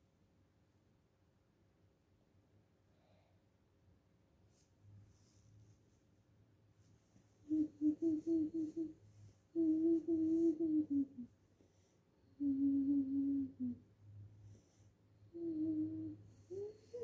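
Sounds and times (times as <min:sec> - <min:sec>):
girl humming: 0:07.5 - 0:11.3, 0:12.4 - 0:13.8, 0:15.3 - 0:17.0.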